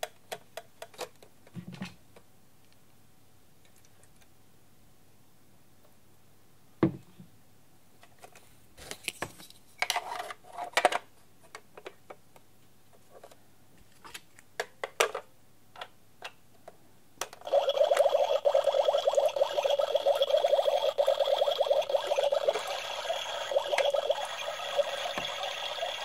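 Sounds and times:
small pump motor whirring: 17.5 - 26.0.

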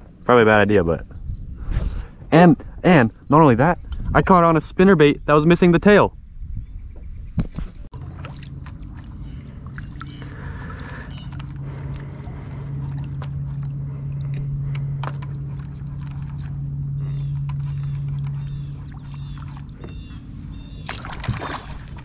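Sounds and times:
steady low hum: 0.0 - 22.0
small water sounds: 7.9 - 22.0.

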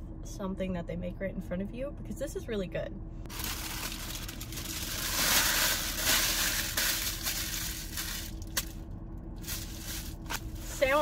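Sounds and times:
paper wrapper crumpling: 3.3 - 8.7.

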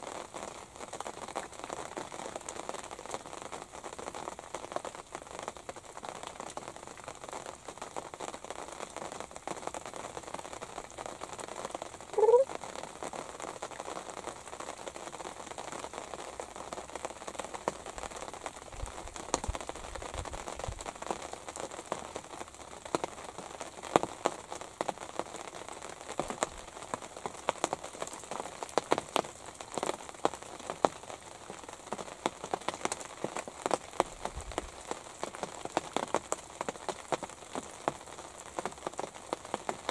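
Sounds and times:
light rain pattering on fabric: 0.0 - 39.9.

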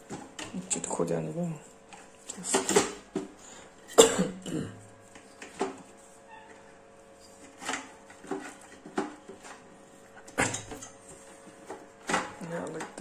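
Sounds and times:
faint steady hum: 0.0 - 13.0
person coughing: 3.9 - 4.9.

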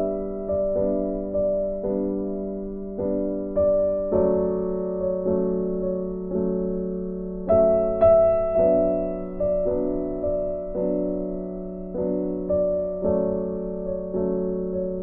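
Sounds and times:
sustained piano chords: 0.0 - 15.0.

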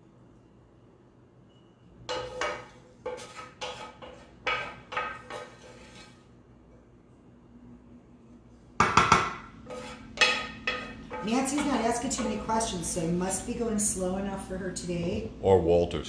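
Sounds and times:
utensil scraping on dish: 2.1 - 6.4, 9.6 - 13.6.

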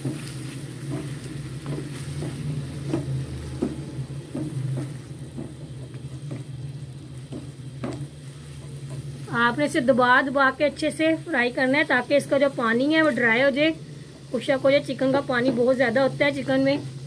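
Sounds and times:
spatula scraping a pan: 0.0 - 10.0
chicken sizzling in a frying pan: 0.0 - 17.0.

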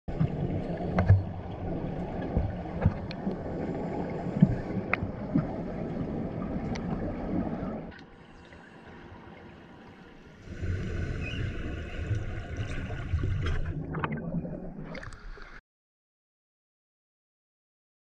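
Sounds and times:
underwater clicks and knocks: 0.1 - 1.5, 2.2 - 3.4
underwater rushing noise: 0.1 - 15.6.

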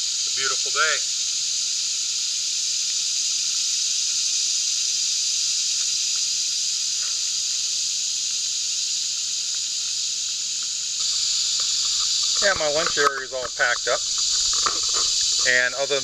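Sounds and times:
insect chorus drone: 0.0 - 16.0
faint clicks and rustles: 10.5 - 15.9.

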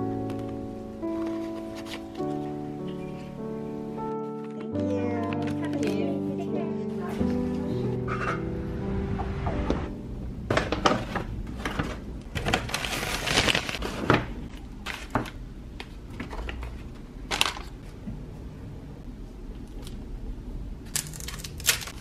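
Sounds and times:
paper bag rustling and crinkling: 1.0 - 3.3, 10.5 - 15.3.

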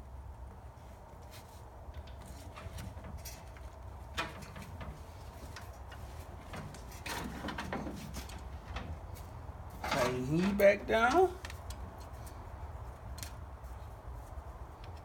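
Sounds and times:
hands handling rubber hose: 1.0 - 15.0.

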